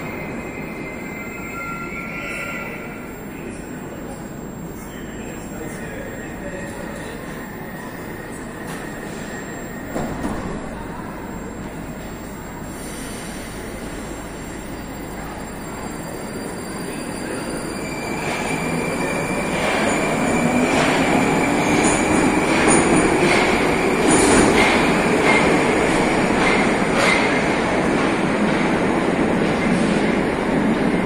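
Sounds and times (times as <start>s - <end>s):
high squeal: 0.0s - 22.9s.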